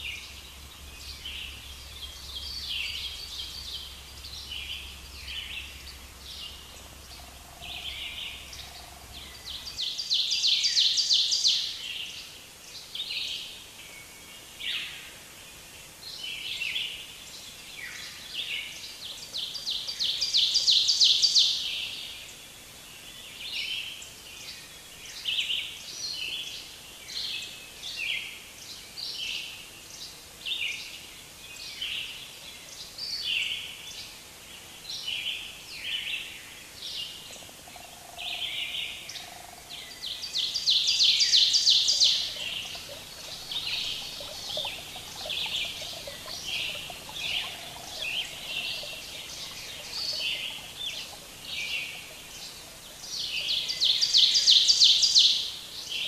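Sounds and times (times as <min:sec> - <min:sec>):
songbirds chirping: 0:00.0 - 0:56.0
bird trill: 0:40.6 - 0:55.4.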